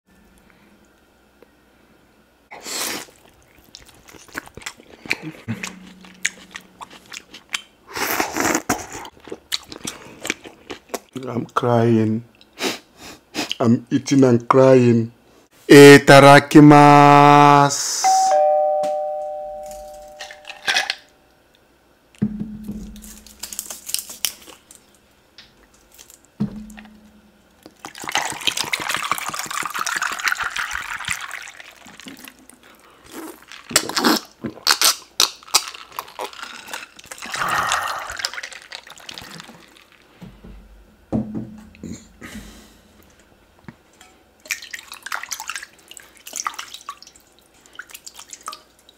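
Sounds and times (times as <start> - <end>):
water poured into a glass: 27.9 - 32.0.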